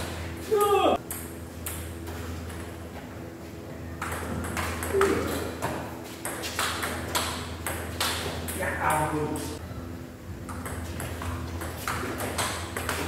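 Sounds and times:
steady hum: 0:00.0 - 0:13.0
table tennis ball hits: 0:04.0 - 0:08.6, 0:10.5 - 0:13.0.

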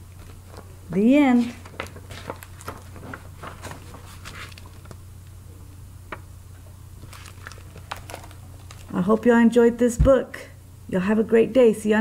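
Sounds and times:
book pages flipping: 0:00.0 - 0:05.0, 0:07.0 - 0:09.0
steady low hum: 0:00.0 - 0:12.0.

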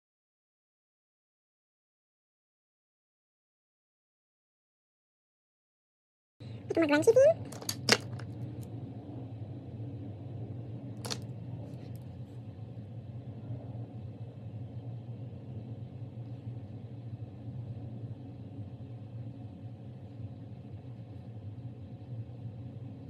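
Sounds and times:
low background hum: 0:06.4 - 0:23.0.

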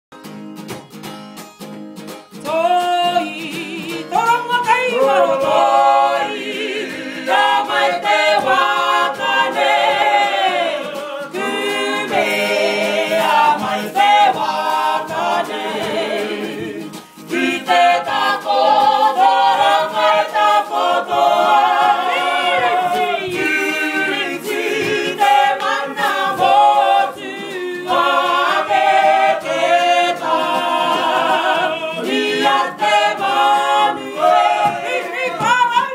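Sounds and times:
group singing in unison: 0:03.0 - 0:35.9
sharp percussive hits: 0:05.4 - 0:35.9.

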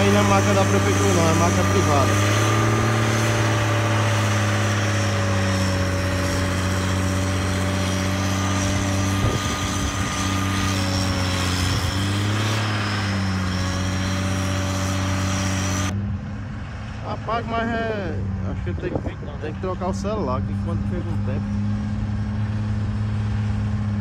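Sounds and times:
blade filling a trench: 0:00.0 - 0:16.0, 0:17.0 - 0:24.0
grader engine running under load: 0:00.0 - 0:24.0.

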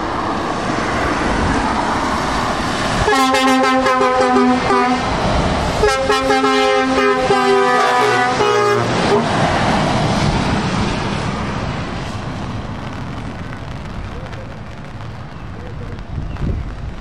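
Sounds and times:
tyres hissing on wet road: 0:00.0 - 0:17.0
truck air horn blasts: 0:03.1 - 0:05.1, 0:05.8 - 0:09.3.

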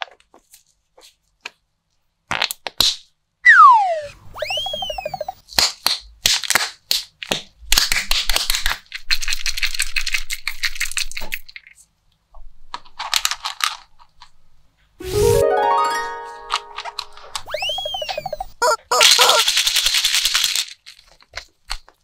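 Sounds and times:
plastic wrapper crinkling: 0:19.0 - 0:22.0.

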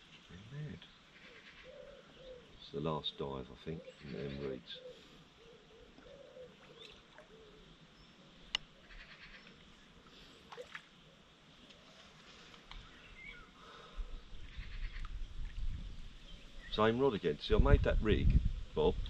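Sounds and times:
faint bird calls: 0:00.0 - 0:16.9
low wind rumble: 0:12.8 - 0:19.0.

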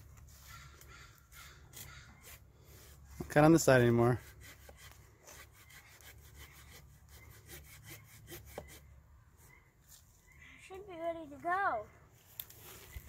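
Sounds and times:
handsaw cutting wood: 0:01.3 - 0:08.9.

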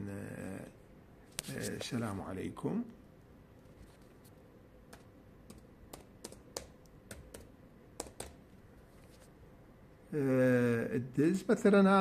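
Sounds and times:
typing on laptop keyboard: 0:04.9 - 0:08.4.

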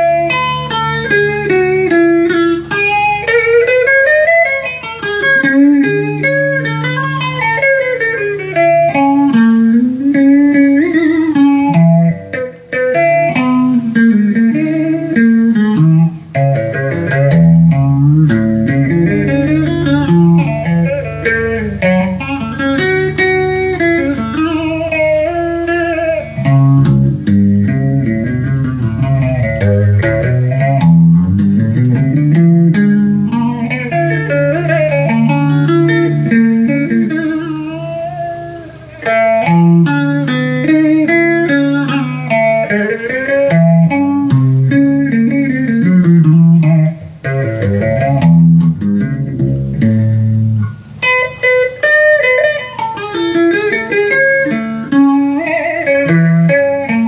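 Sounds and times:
electric guitar melody with bends: 0:00.0 - 0:57.0
low bass notes: 0:08.5 - 0:38.1, 0:42.8 - 0:51.0.

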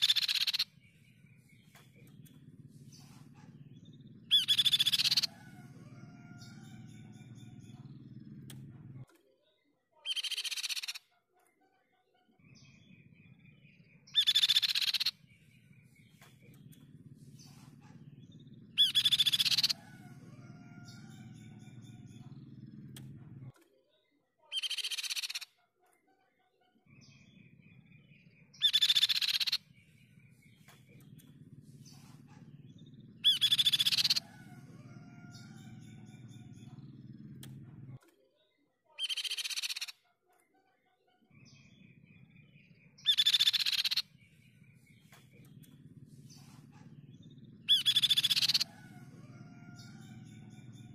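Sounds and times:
faint low hum: 0:00.0 - 0:09.9, 0:11.2 - 0:24.4, 0:25.8 - 0:38.9, 0:40.0 - 0:50.9
bird singing rapid trills: 0:00.0 - 0:11.1, 0:12.4 - 0:25.5, 0:26.9 - 0:40.0, 0:41.2 - 0:50.9.

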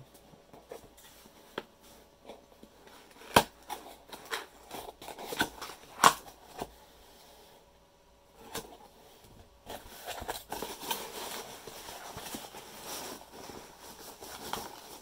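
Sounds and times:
fingers rustling packing peanuts: 0:09.7 - 0:15.0.

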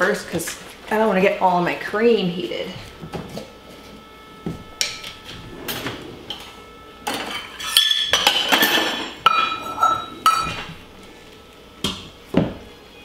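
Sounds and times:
dishes and utensils clinking: 0:04.8 - 0:10.8.

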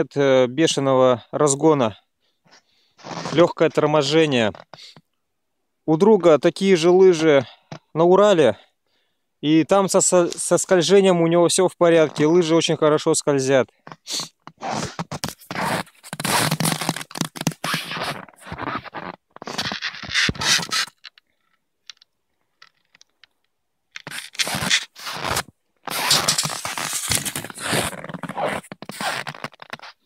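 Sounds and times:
footsteps crunching in snow: 0:14.6 - 0:20.9, 0:24.1 - 0:30.0.

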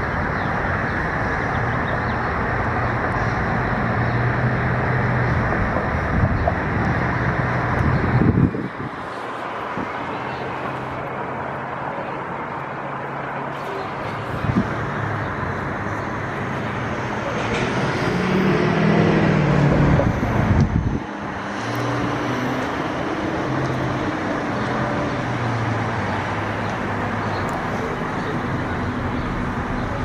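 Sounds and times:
traffic hum: 0:00.0 - 0:30.0
vehicle passing close: 0:12.8 - 0:30.0.

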